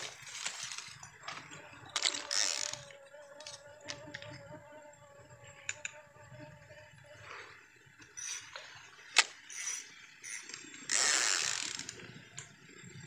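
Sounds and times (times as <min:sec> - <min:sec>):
fishing reel whirring: 0:00.0 - 0:04.4, 0:08.0 - 0:12.9.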